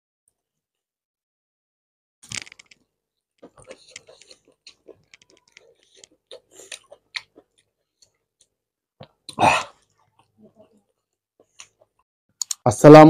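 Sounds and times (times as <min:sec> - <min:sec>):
chewing and lip smacks: 0:03.4 - 0:12.6.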